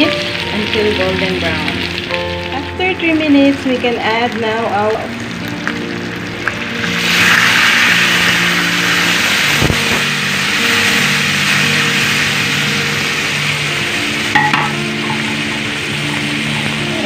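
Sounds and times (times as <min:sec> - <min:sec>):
meat sizzling in a wok: 0:00.0 - 0:17.0
spatula clanking against wok: 0:14.3 - 0:15.6.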